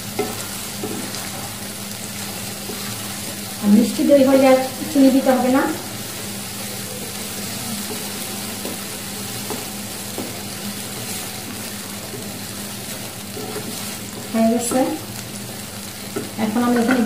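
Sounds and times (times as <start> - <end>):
gravy sizzling in a wok: 0.0 - 17.0
wooden spatula scraping: 7.5 - 14.8.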